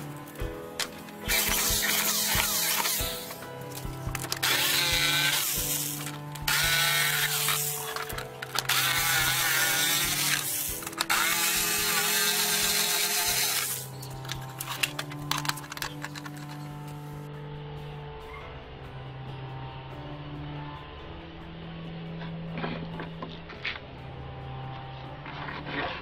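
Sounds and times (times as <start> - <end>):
jigsaw cutting wood: 0.0 - 16.9
background music: 0.0 - 26.0.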